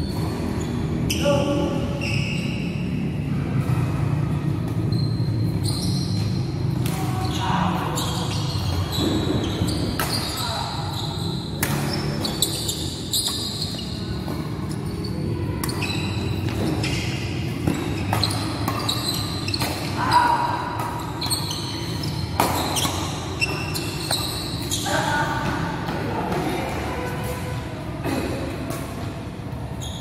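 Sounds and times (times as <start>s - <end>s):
shoe squeaks on court: 1.9s - 2.8s, 4.8s - 25.2s, 29.7s - 30.0s
rackets striking shuttlecock: 9.8s - 10.4s, 11.6s - 14.8s, 15.6s - 24.7s.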